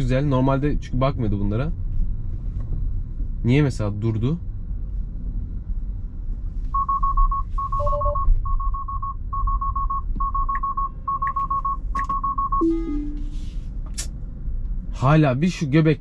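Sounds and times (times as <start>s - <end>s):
low road rumble: 0.0s - 16.0s
rapid high beeps: 6.8s - 13.4s
two-note falling chime: 12.6s - 13.5s.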